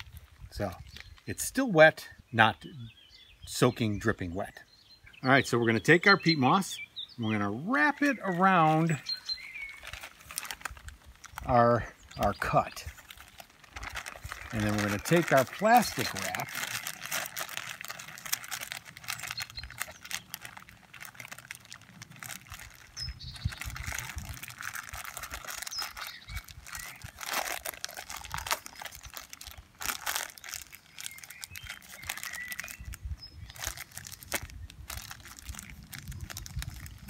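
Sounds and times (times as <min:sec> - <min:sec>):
plastic bag crinkling: 0:07.8 - 0:37.0.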